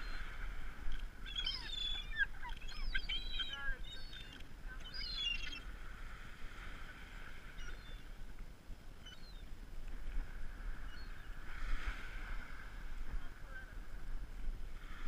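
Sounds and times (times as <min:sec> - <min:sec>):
gulls calling: 0:00.0 - 0:05.7, 0:07.4 - 0:08.2, 0:09.0 - 0:09.5.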